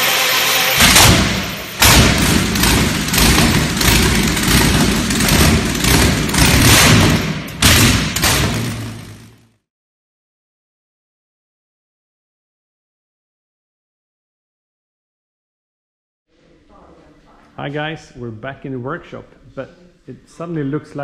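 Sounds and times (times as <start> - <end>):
loud noisy rumble: 0.0 - 9.6
sudden thuds: 0.8 - 9.2.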